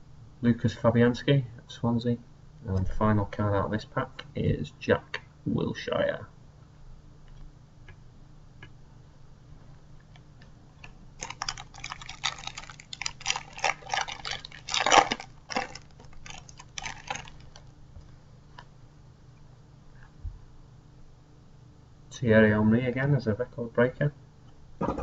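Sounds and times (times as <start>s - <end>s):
plastic wrapper crinkling: 10.7s - 17.8s.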